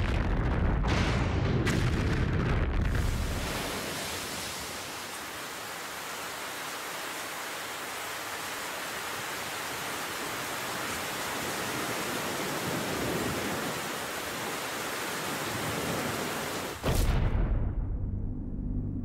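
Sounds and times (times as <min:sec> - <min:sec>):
deep rumbling explosion: 0:00.0 - 0:03.7, 0:16.8 - 0:19.0.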